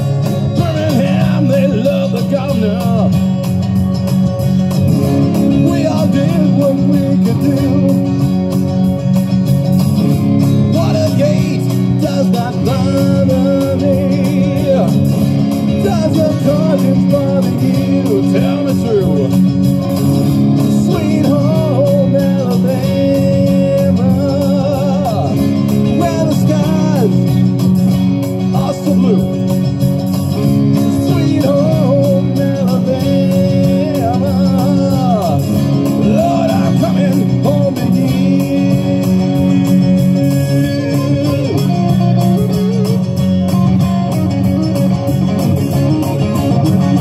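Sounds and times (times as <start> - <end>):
electric guitar: 0.0 - 47.0
man singing into microphone: 0.2 - 3.5, 5.1 - 8.5, 10.6 - 19.5, 20.6 - 27.4, 28.4 - 29.5, 30.7 - 42.6.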